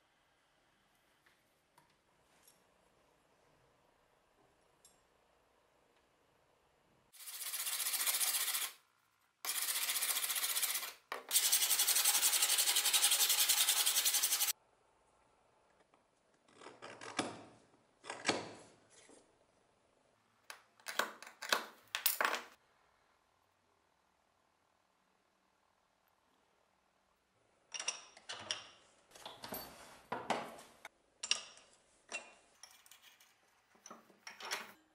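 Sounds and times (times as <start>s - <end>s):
scrapes and rubs on metal: 7.2s - 8.8s, 9.5s - 14.5s
file rasping on steel: 9.5s - 14.5s.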